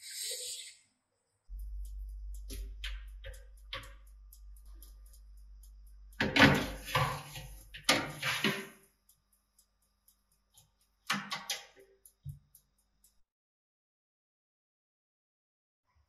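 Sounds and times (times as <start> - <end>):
low hum: 1.5 - 7.9
metal tray scraping on wire rack: 6.2 - 8.8.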